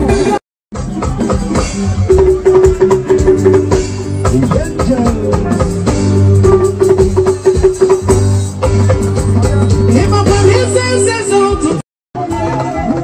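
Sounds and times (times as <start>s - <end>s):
loud dance music: 0.0s - 12.4s.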